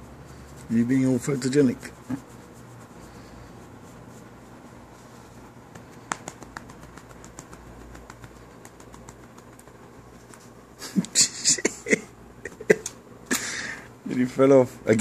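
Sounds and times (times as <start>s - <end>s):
rubbing and handling noise: 0.0s - 11.7s.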